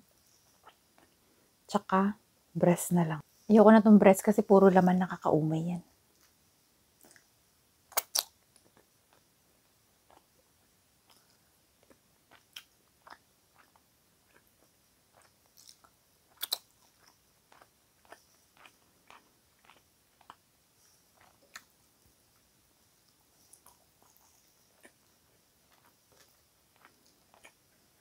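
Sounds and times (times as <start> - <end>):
chewing: 7.0 - 7.3, 10.0 - 21.8, 22.4 - 28.0
wet mouth clicks: 7.9 - 9.2, 15.1 - 16.7.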